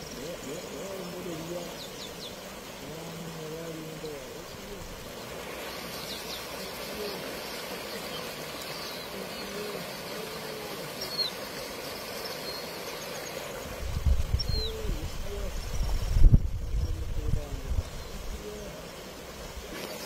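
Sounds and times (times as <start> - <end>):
fast-flowing river rushing: 0.7 - 15.3
bird chirping: 3.4 - 19.1
wind buffeting microphone: 13.7 - 18.4.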